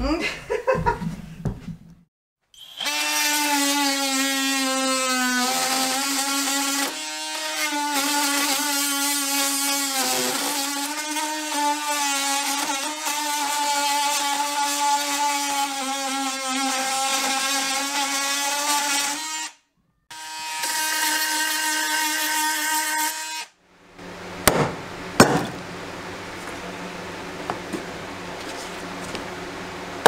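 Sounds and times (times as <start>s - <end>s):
oscillating multi-tool whining: 2.6s - 22.8s
sharp knocks on wood: 24.5s - 25.6s.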